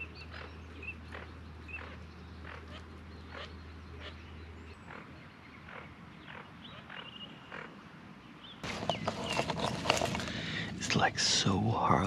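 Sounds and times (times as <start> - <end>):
rustle: 4.8 - 11.0.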